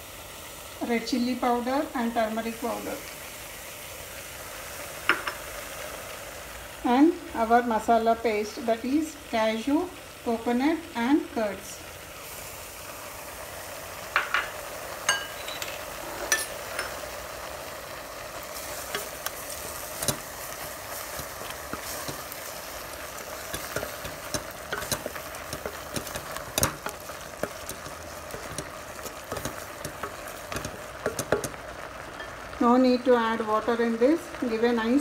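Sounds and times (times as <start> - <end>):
vegetables sizzling in a pot: 0.0 - 35.0
spoon scraping against a pot: 15.1 - 17.0, 18.6 - 31.6.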